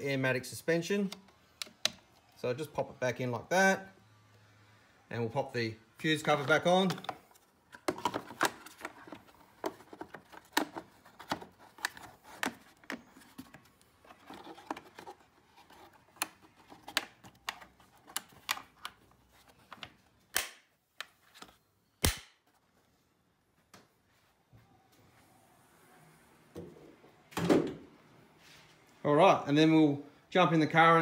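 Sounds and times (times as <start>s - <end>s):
plastic cover clicking and snapping: 6.8s - 13.6s.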